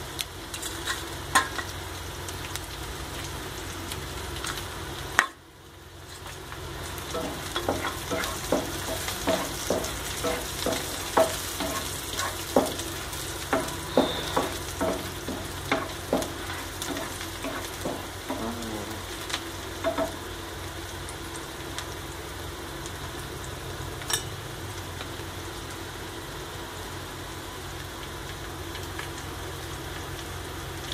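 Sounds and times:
vegetables sizzling in oil: 0.0s - 30.9s
spatula tapping and scraping pan: 7.1s - 18.5s, 19.8s - 20.2s.

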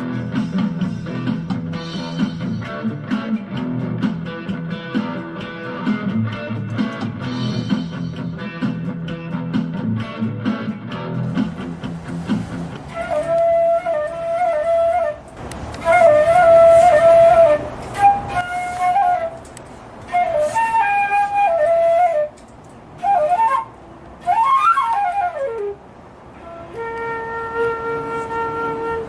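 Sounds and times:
flute melody: 12.7s - 29.0s.

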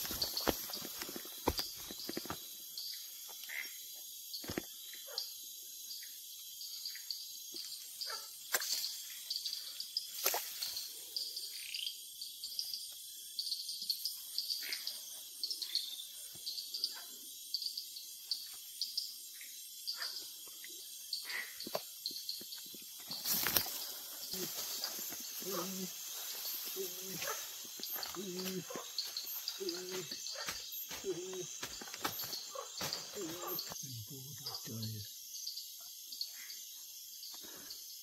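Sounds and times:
rustles: 0.0s - 2.4s, 22.6s - 33.8s
crickets and insects trilling: 0.0s - 38.0s.

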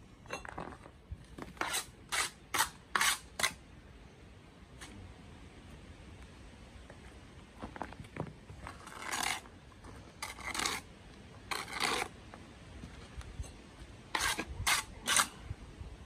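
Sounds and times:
trowel scraping bricks and mortar: 0.3s - 3.6s, 8.6s - 12.2s, 14.1s - 15.4s.

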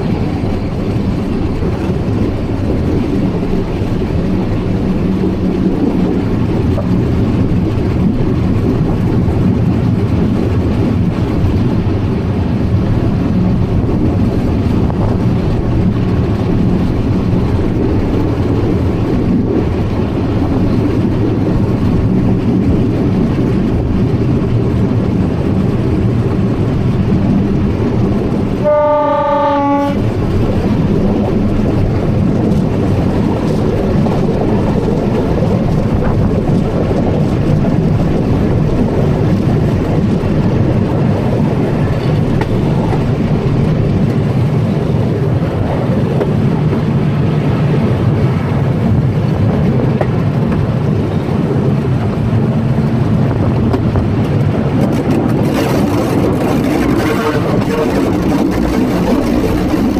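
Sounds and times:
train rumbling: 0.0s - 59.9s
train horn blast: 28.6s - 30.1s, 57.0s - 58.0s.

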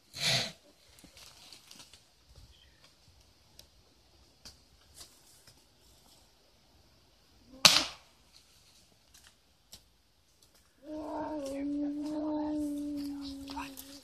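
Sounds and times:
long steady call: 10.8s - 14.0s.

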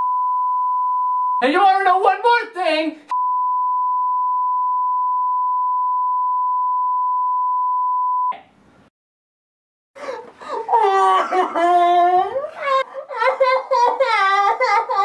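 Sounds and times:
censor bleep: 0.0s - 1.4s, 3.1s - 8.4s.

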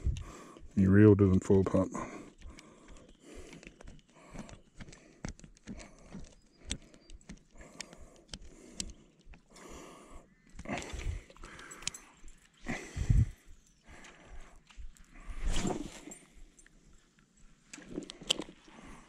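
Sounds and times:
hands clicking and knocking on reel: 2.4s - 9.5s
short rustle: 15.2s - 16.3s.

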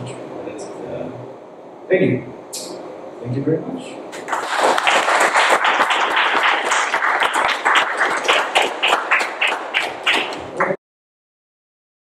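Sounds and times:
audience applauding: 4.2s - 10.8s.

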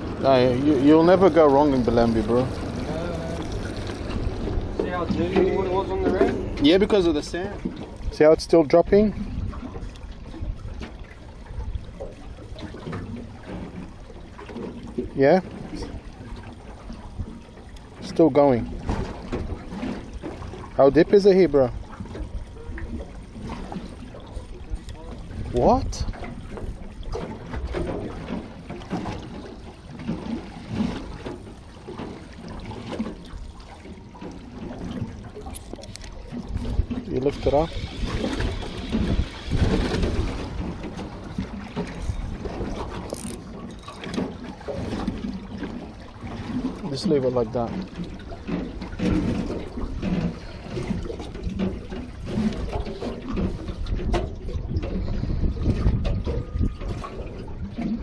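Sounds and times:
water wash against boat: 0.0s - 58.0s
wind on microphone: 8.9s - 12.1s, 36.2s - 43.4s, 48.9s - 58.0s.

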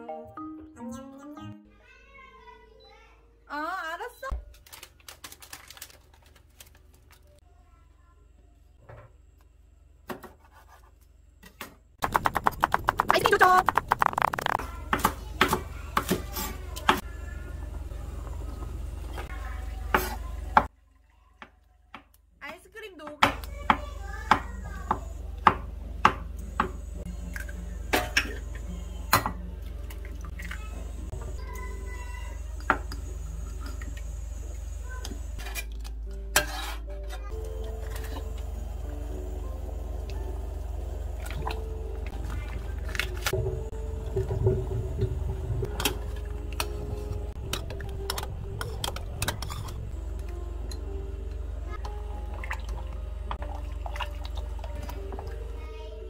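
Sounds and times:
steady low hum: 37.3s - 55.4s.

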